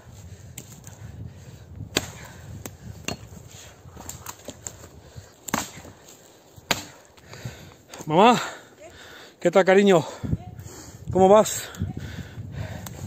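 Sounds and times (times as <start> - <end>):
axe chopping wood: 1.9 - 3.4, 5.4 - 6.0, 6.6 - 7.1.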